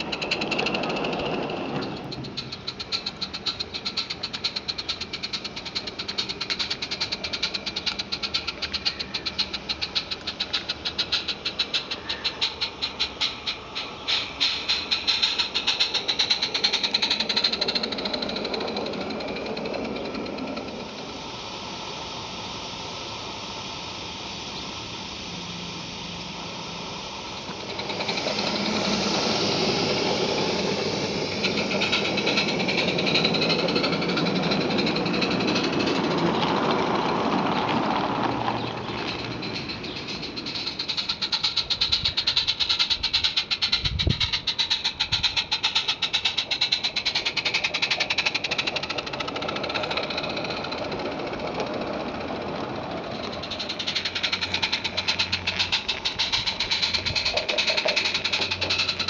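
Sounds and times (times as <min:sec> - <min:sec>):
steam hissing: 0:00.0 - 0:59.0
steam locomotive chuffing: 0:00.0 - 0:59.0
running gear rattle: 0:37.9 - 0:59.0.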